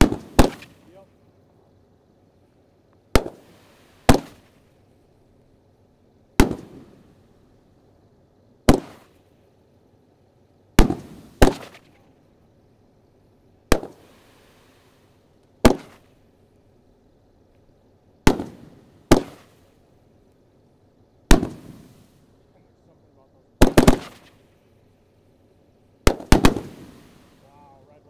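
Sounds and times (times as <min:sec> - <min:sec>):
firework booms with echo: 0:00.0 - 0:01.0, 0:03.1 - 0:04.7, 0:06.4 - 0:07.2, 0:08.6 - 0:09.2, 0:10.8 - 0:12.0, 0:13.7 - 0:14.9, 0:15.6 - 0:16.2, 0:18.2 - 0:19.7, 0:21.2 - 0:22.2, 0:23.6 - 0:24.5, 0:26.0 - 0:27.5.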